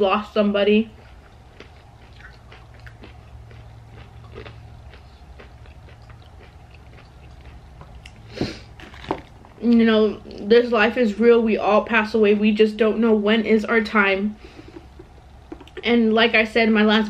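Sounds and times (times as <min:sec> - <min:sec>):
low room hum: 0:00.0 - 0:17.0
lip and tongue clicks: 0:01.2 - 0:08.3.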